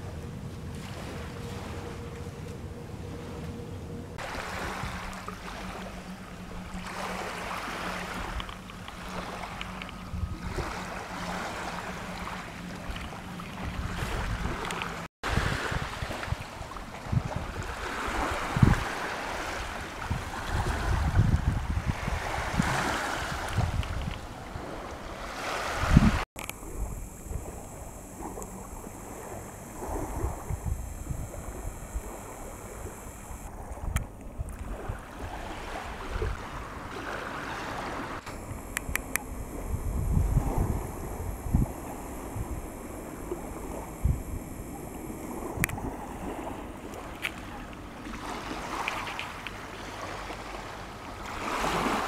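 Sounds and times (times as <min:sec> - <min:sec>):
lake water washing at shore: 0:00.0 - 0:02.0, 0:04.2 - 0:52.0
wind buffeting microphone: 0:12.8 - 0:19.0, 0:19.6 - 0:36.5, 0:38.2 - 0:46.8.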